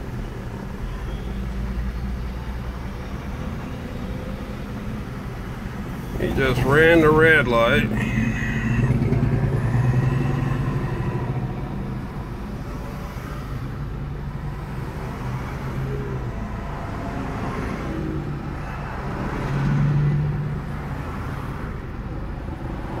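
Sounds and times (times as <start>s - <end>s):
road traffic: 0.0s - 23.0s
car engine idling: 2.6s - 15.1s.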